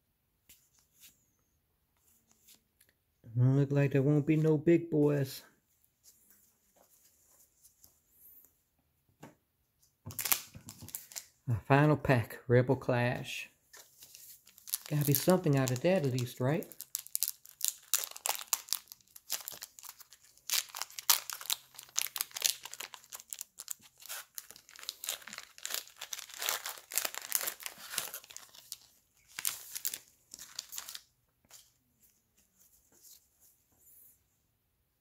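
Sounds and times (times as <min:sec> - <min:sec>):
foil wrapper tearing and crinkling: 0:10.1 - 0:11.3, 0:14.1 - 0:31.1.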